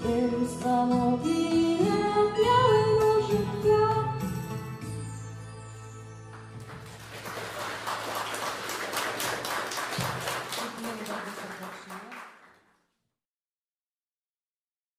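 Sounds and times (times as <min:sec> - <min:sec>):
audience applause: 0:06.6 - 0:12.8
voice: 0:10.6 - 0:12.2.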